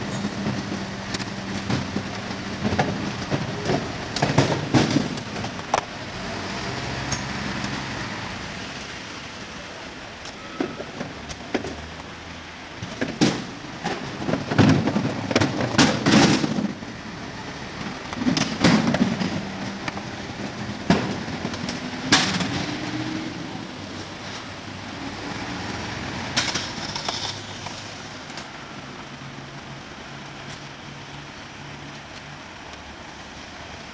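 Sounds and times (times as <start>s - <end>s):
garbage truck clanks and bangs: 0.0s - 6.0s, 12.8s - 17.0s, 17.6s - 23.3s
truck engine running: 0.0s - 10.3s.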